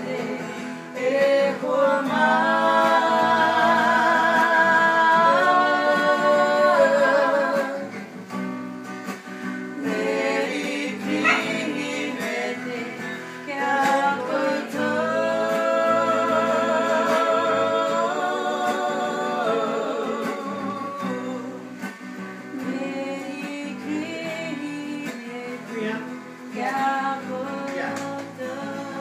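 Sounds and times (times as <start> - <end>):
person singing: 0.0 - 8.0, 9.8 - 29.0
guitar: 0.0 - 29.0.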